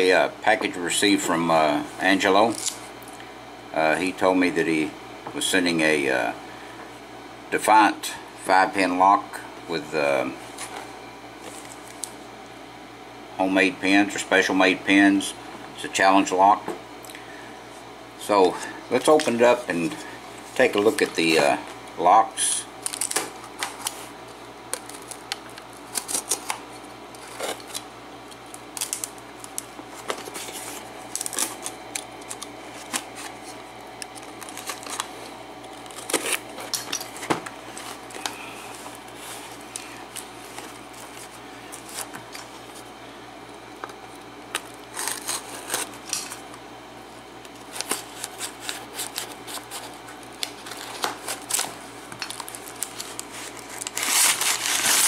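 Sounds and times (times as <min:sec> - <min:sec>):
cardboard tearing and rustling: 0:22.8 - 0:24.1, 0:24.7 - 0:27.8, 0:28.7 - 0:42.9, 0:44.6 - 0:46.4, 0:47.5 - 0:55.0.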